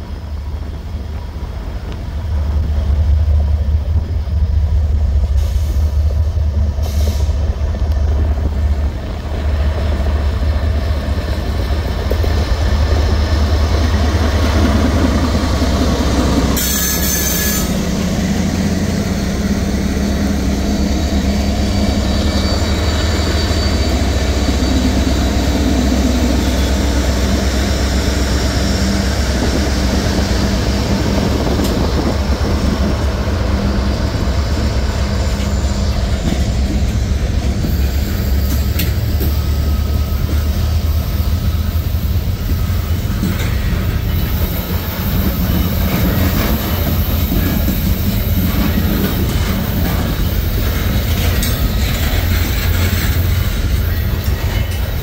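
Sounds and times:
locomotives rumbling past: 0.0s - 55.0s
burst of hiss: 6.8s - 7.5s
faint wheel squeal: 21.5s - 25.5s
freight cars rolling over rails: 42.4s - 55.0s.

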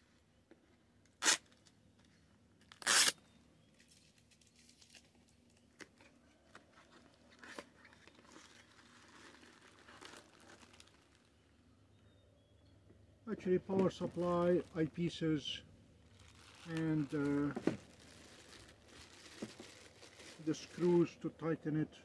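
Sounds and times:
packaging rustling and crinkling: 3.8s - 11.5s, 16.0s - 20.8s.

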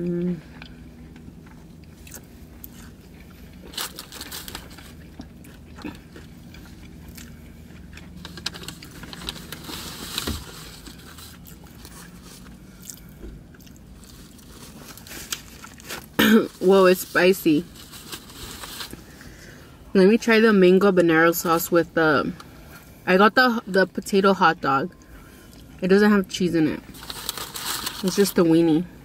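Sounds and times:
crunchy chewing: 0.4s - 16.2s.

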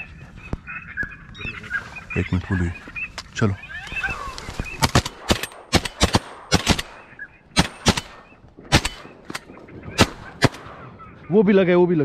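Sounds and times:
shotgun blasts: 4.8s - 11.0s.

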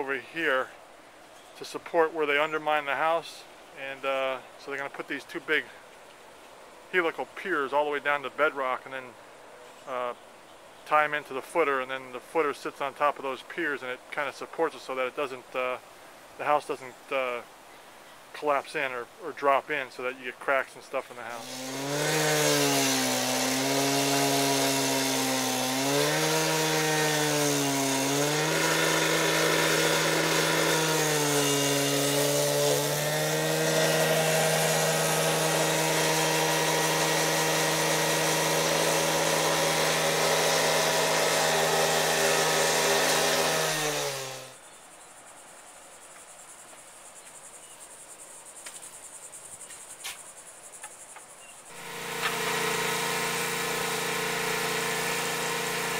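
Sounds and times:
cut-off saw cutting concrete: 21.2s - 44.6s, 51.7s - 55.9s.

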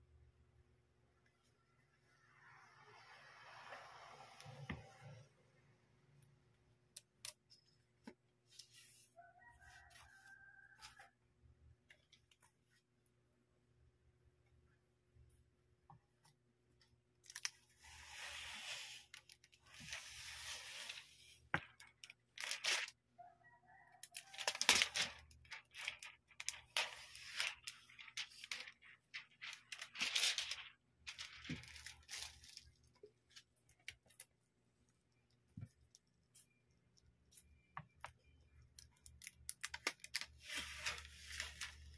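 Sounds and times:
plastic film crackling peeling: 21.7s - 23.0s, 24.1s - 34.3s, 38.6s - 41.9s.

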